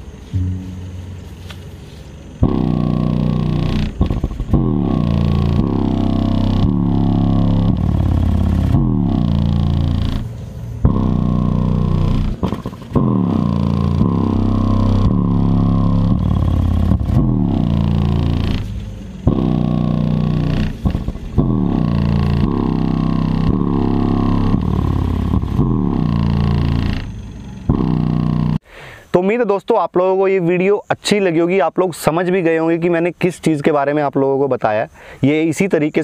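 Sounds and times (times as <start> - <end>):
subwoofer playing deep bass: 0.4 - 1.6, 2.4 - 28.6.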